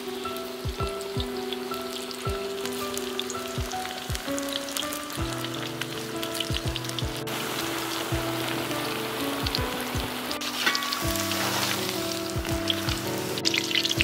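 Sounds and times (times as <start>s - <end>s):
batter frying in hot oil: 0.0s - 14.0s
background music with drum beat: 0.6s - 1.5s, 3.5s - 4.4s, 5.0s - 5.6s, 6.4s - 7.3s, 9.4s - 14.0s.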